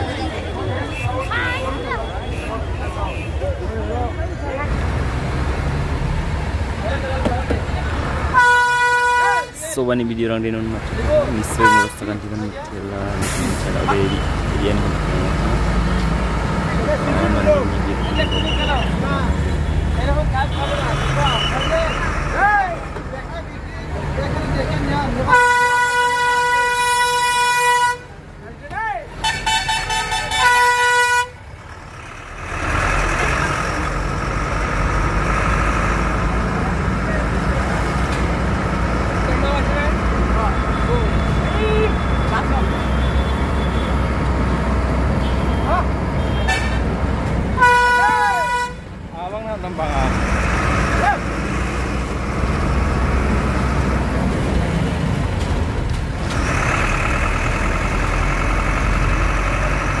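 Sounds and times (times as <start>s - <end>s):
engine rumble: 0.0s - 60.0s
road noise: 0.0s - 60.0s
vehicle horn blaring: 8.3s - 9.6s, 11.6s - 12.2s, 25.3s - 28.1s, 29.2s - 31.4s, 45.2s - 46.9s, 47.6s - 48.9s.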